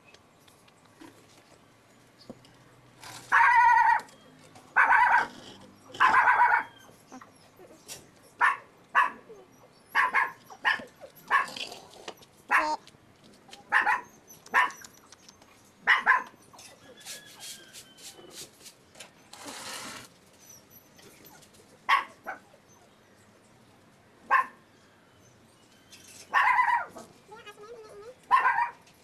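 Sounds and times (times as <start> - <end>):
dog barking: 3.3 - 4.1, 4.8 - 5.4, 6.0 - 6.7, 8.4 - 9.3, 10.0 - 11.6, 12.5 - 12.8, 13.7 - 14.8, 15.8 - 16.4, 21.9 - 22.4, 24.3 - 24.6, 26.3 - 27.1, 28.3 - 28.8.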